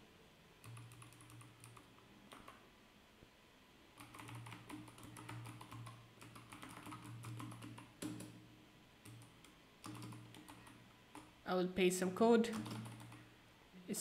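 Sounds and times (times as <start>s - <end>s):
typing on computer keyboard: 0.6s - 2.6s, 4.0s - 8.4s, 9.0s - 11.3s, 12.5s - 13.3s.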